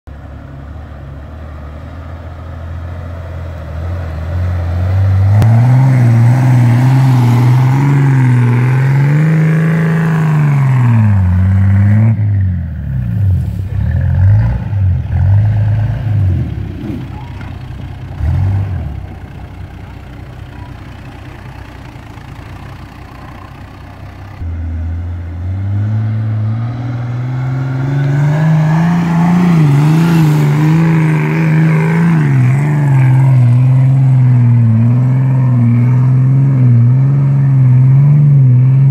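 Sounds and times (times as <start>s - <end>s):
diesel engine revving: 0.1s - 38.9s.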